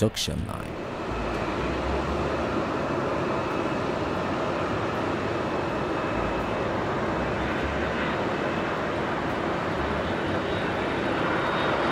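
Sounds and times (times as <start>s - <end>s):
faint high engine whine: 0.0s - 11.9s
jet engine rumble: 0.0s - 11.9s.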